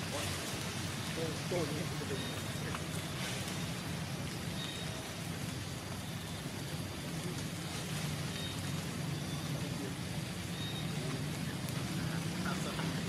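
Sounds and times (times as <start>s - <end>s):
low rumble and hiss: 0.0s - 13.0s
faint high chirps: 8.2s - 11.8s.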